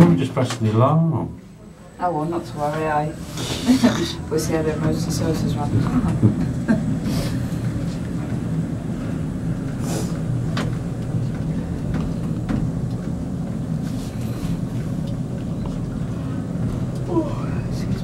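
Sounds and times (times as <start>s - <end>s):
funicular rumbling along track: 1.2s - 18.0s.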